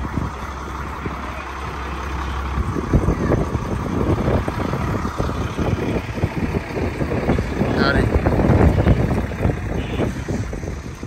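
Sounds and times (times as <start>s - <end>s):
gusty wind buffeting microphone: 0.0s - 11.0s.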